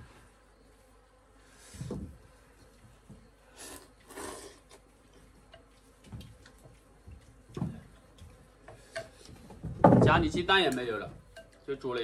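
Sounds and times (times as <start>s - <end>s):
noodles being slurped: 3.6s - 4.8s.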